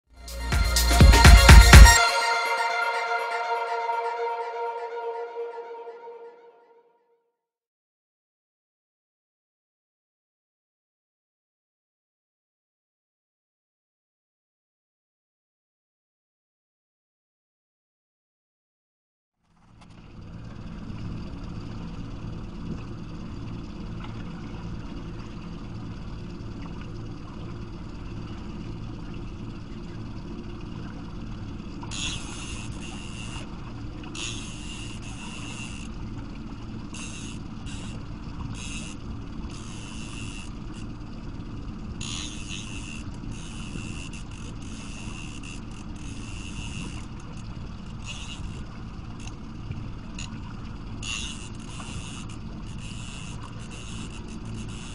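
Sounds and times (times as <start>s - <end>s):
boat engine hum: 19.7s - 54.9s
fishing reel winding: 31.9s - 33.5s, 34.1s - 35.9s, 36.9s - 40.9s, 42.0s - 47.0s, 48.0s - 48.6s, 51.0s - 54.9s.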